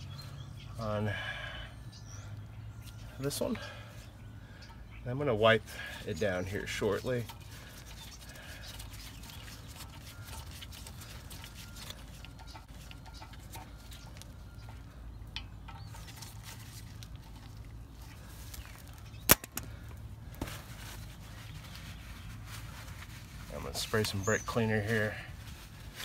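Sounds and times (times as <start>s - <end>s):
sharp click: 19.3s - 19.7s.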